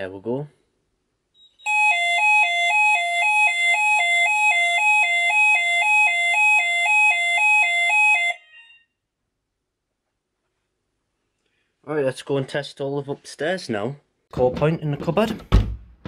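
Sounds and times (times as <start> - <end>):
two-tone fire alarm: 1.4 - 9.0.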